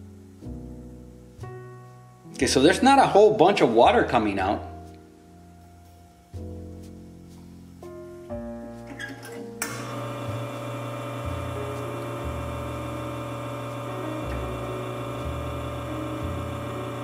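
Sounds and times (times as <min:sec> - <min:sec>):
pump humming: 0:09.6 - 0:17.0.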